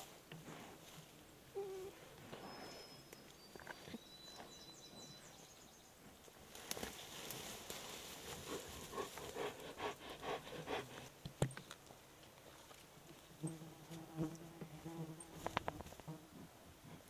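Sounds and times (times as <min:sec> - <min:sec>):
clicks in undergrowth: 0:06.2 - 0:09.4, 0:15.4 - 0:16.1.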